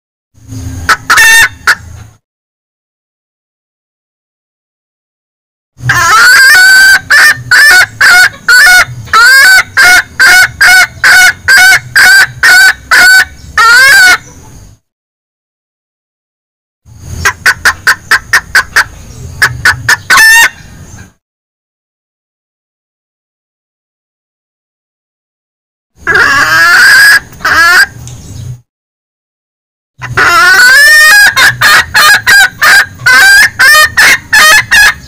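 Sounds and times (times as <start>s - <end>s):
hen clucking calls: 0.8s - 2.1s, 5.8s - 14.6s, 17.2s - 21.2s, 26.0s - 28.0s, 30.0s - 35.0s.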